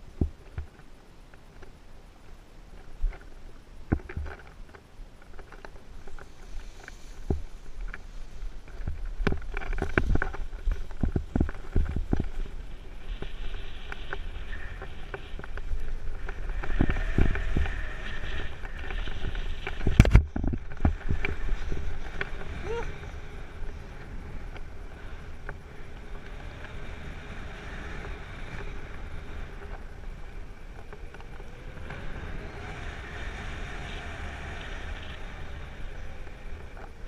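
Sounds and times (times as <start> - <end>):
wind rumbling on microphone: 0.0 - 37.0
hiss of rushing air: 9.9 - 30.8.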